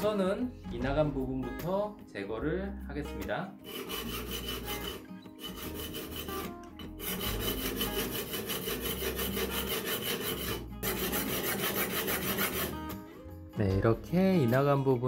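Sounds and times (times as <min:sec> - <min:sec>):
steel scraping on sharpening stone: 0:03.6 - 0:12.9.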